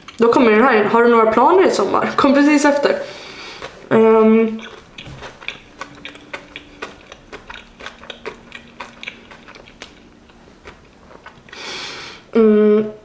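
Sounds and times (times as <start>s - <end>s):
chewing mouth clicks: 3.3s - 11.6s.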